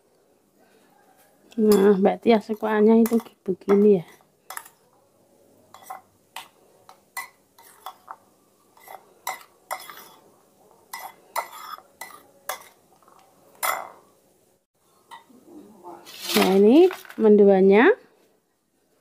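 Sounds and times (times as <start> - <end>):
metal spoon clinking in ceramic bowl: 1.6 - 2.0, 3.0 - 4.9, 13.6 - 14.0.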